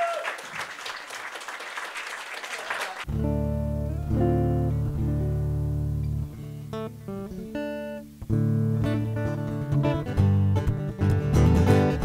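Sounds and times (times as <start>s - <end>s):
applause: 0.0s - 3.1s
strummed guitar chords: 3.1s - 12.0s.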